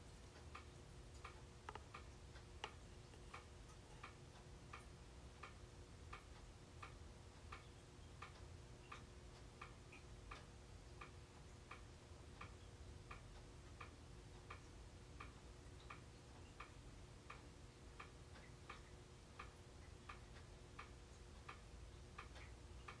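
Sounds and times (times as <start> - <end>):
ceiling fan clicking: 0.0 - 23.0
fan motor hum: 0.0 - 23.0.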